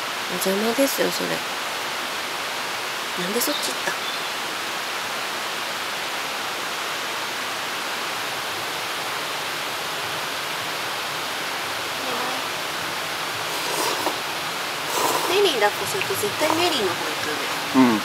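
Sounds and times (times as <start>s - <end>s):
stream water rushing: 0.0s - 18.0s.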